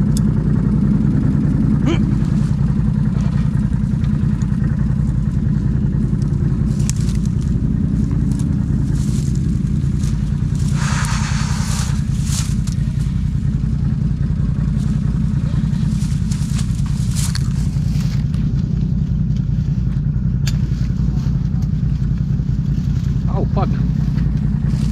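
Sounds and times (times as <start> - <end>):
off-road vehicle engine running: 0.0 - 24.9.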